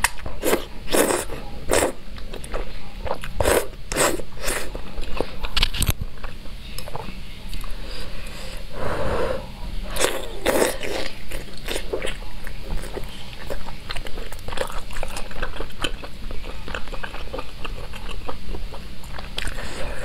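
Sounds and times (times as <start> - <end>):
wet chewing and lip-smacking: 10.0 - 19.7.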